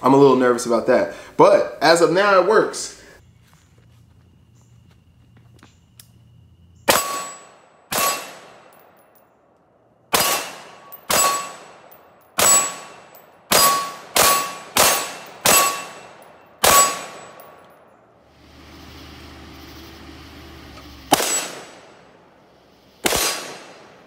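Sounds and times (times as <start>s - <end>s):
rifle shots: 6.9s - 9.0s, 10.1s - 17.6s, 21.1s - 22.0s, 23.0s - 24.0s.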